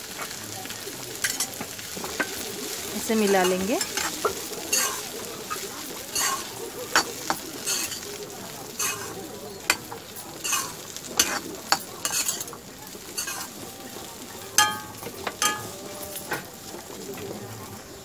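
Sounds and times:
food sizzling in a pan: 0:00.0 - 0:18.0
spatula scraping a pan: 0:01.2 - 0:16.5
spatula knocking ringing pan: 0:03.2 - 0:08.1, 0:08.8 - 0:12.5, 0:13.2 - 0:13.6, 0:14.4 - 0:16.8.

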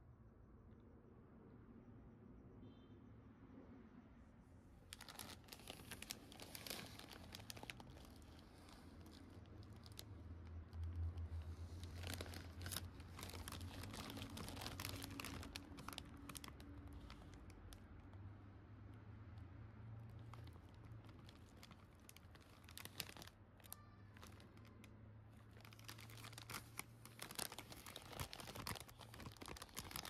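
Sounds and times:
plastic bag crinkling: 0:04.9 - 0:17.8, 0:20.1 - 0:30.0.

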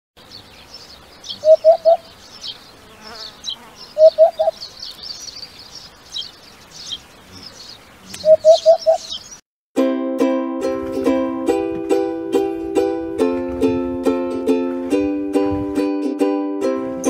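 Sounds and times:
high chirping of birds: 0:00.2 - 0:09.4
hoopoe calling oop-oop-oop: 0:01.3 - 0:02.1, 0:03.9 - 0:04.6, 0:07.2 - 0:09.1.

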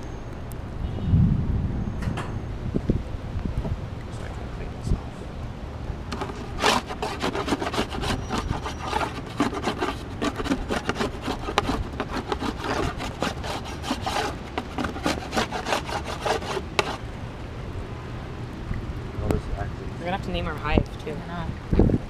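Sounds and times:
metal tool scraping wood: 0:06.1 - 0:17.0.

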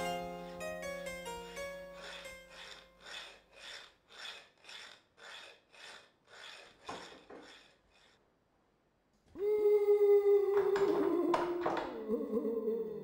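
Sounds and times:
metal file rasping on iron: 0:00.6 - 0:08.2.

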